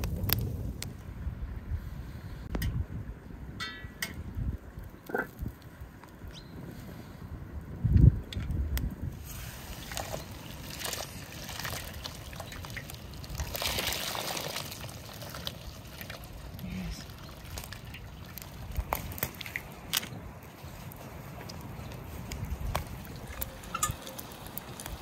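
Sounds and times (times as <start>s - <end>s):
hot water pouring and splashing: 9.1s - 25.0s.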